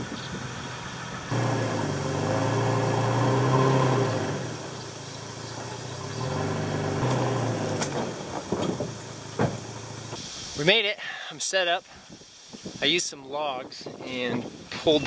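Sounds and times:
pickup truck engine revving: 0.0 - 10.2.

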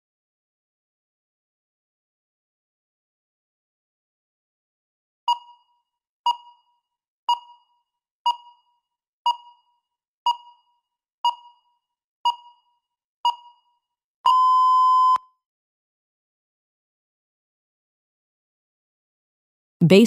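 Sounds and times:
countdown timer beeping: 7.3 - 8.7.

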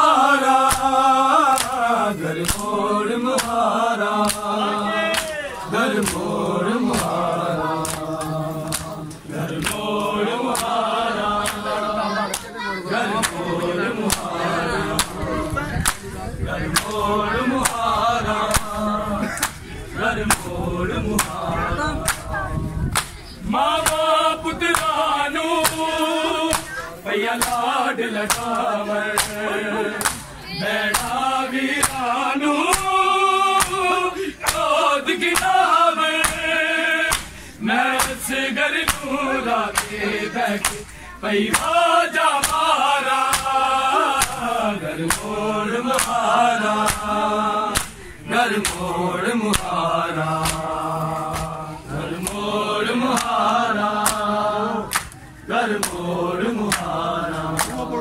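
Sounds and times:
men chanting a mourning melody: 0.0 - 58.0
hands slapping chests: 0.6 - 3.6, 4.2 - 4.5, 5.1 - 10.8, 11.4 - 11.7, 12.3 - 13.5, 14.1 - 16.1, 16.7 - 17.0, 17.6 - 17.8, 18.5 - 20.5, 21.2 - 21.4, 22.0 - 22.3, 22.9 - 23.2, 23.8 - 24.1, 24.7 - 25.0, 25.6 - 25.9, 26.5 - 27.7, 28.3 - 29.4, 30.0 - 30.3, 30.9 - 31.2, 31.8 - 32.0, 32.7 - 32.9, 33.6 - 35.6, 36.2 - 36.5, 37.1 - 39.1, 39.7 - 40.0, 40.6 - 40.9, 41.5 - 41.8, 42.4 - 46.2, 46.8 - 48.9, 49.5 - 49.8, 50.4 - 51.6, 52.2 - 52.5, 53.1 - 53.4, 54.0 - 54.3, 54.9 - 56.1, 56.7 - 57.9.

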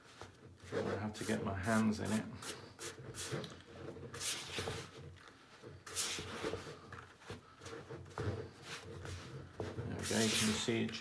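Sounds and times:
spatula scraping dough in bowl: 7.7 - 10.9.

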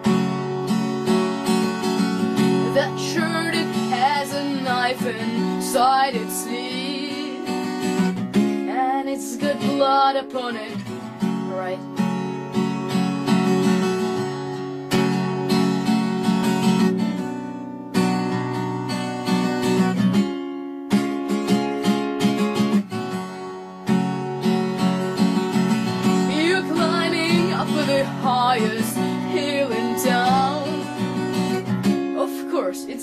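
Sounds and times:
strummed acoustic guitar: 0.0 - 33.0
person singing: 2.6 - 7.8, 8.6 - 11.9, 26.2 - 31.0.

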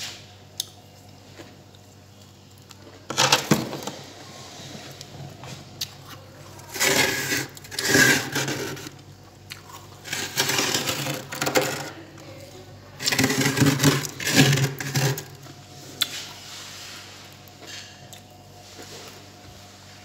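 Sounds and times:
low steady hum: 0.0 - 20.0
fingers scraping freezer frost: 6.6 - 9.0, 10.0 - 11.9, 13.0 - 15.4.

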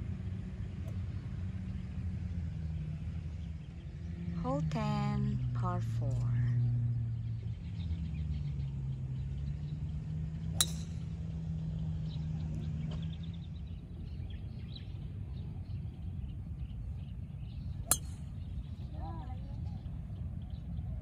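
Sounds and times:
steady low hum: 0.0 - 21.0
golf club striking ball: 10.5 - 11.2, 17.8 - 18.5.

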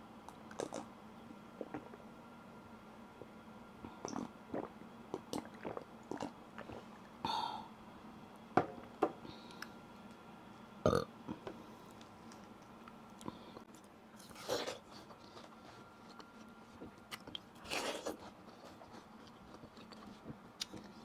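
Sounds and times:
sipping and swallowing: 0.5 - 0.9, 3.9 - 7.2
person burping: 10.9 - 11.1.

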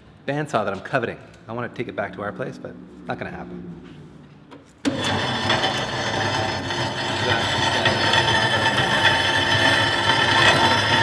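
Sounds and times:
bandsaw cutting steel: 4.8 - 11.0.

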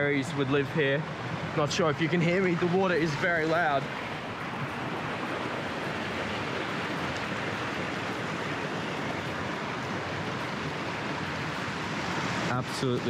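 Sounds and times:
water rushing over rocks: 0.0 - 13.0.

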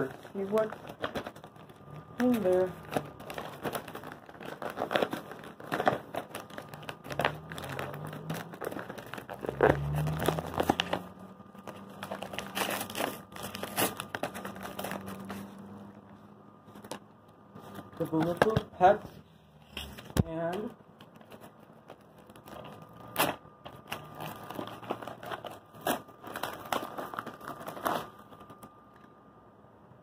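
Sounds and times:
packaging crinkling and rustling: 0.0 - 29.3.

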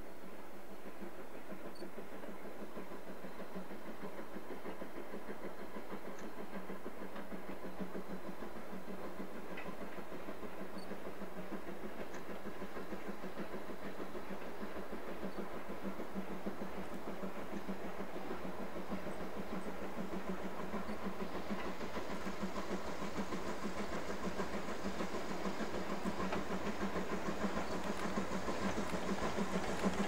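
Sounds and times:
steam locomotive exhaust beat: 0.0 - 30.0
train running on track: 0.0 - 30.0.

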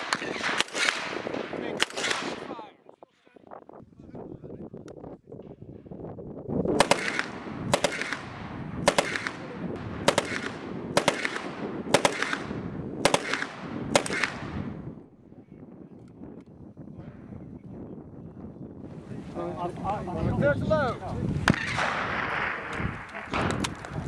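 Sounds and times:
submachine gun shots with echo: 0.0 - 2.5, 6.8 - 14.7, 21.5 - 23.7.

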